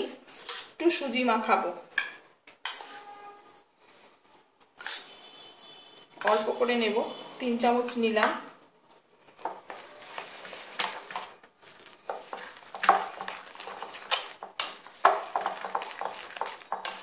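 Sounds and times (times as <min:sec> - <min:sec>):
batter stirred in glass bowl: 0:09.4 - 0:17.0.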